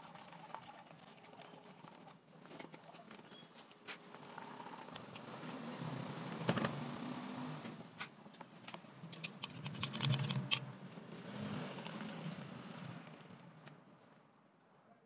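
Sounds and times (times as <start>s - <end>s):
liquid pouring: 0.0s - 2.3s.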